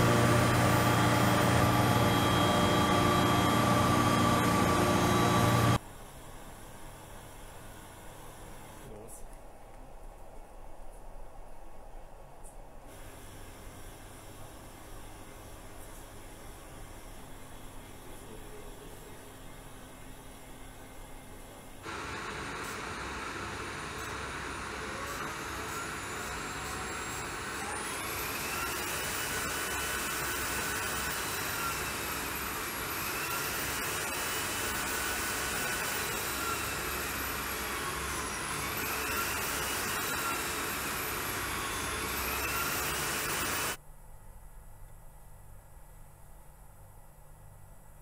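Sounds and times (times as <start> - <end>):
fuel cell system rushing whine: 0.0 - 5.8, 21.7 - 32.8.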